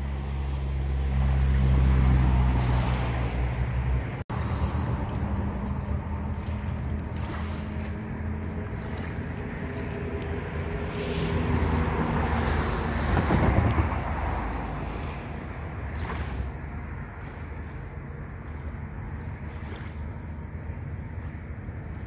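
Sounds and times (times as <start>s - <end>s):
wind rumbling on microphone: 0.0s - 22.0s
waves washing on pebbles: 4.3s - 20.2s.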